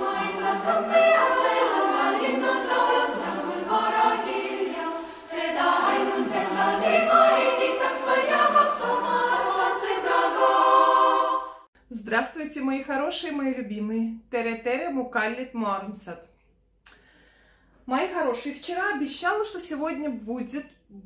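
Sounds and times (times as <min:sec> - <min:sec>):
choir singing in harmony: 0:00.0 - 0:11.7.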